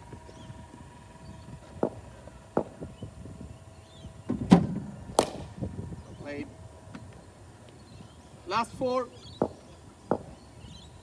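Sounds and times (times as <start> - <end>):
cricket bat hitting ball: 5.2 - 5.5.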